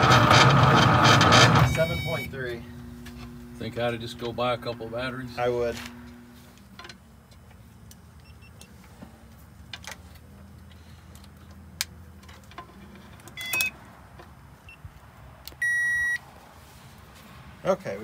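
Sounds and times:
low steady hum: 0.0s - 16.2s
high electronic beep: 1.6s - 2.4s, 15.6s - 16.2s.

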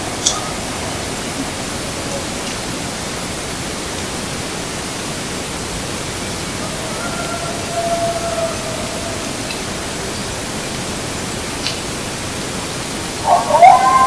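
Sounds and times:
steady microphone hiss: 0.0s - 14.0s.

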